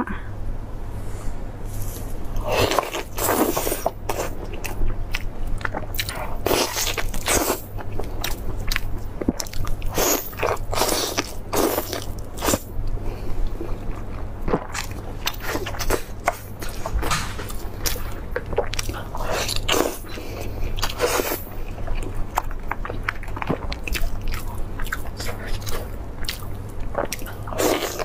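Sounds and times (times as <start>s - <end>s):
low hum: 0.0s - 9.9s
woman chewing meat: 2.3s - 28.0s.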